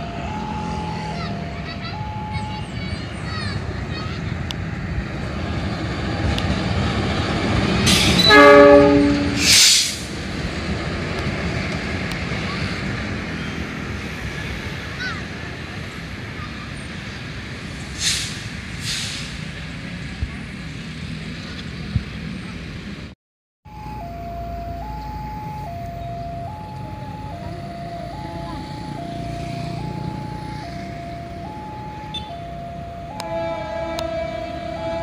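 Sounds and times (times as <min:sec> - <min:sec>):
diesel locomotive engine rumble: 0:00.0 - 0:35.0
locomotive horn blast: 0:07.9 - 0:10.0, 0:26.2 - 0:35.0
hissy bursts: 0:17.9 - 0:19.5.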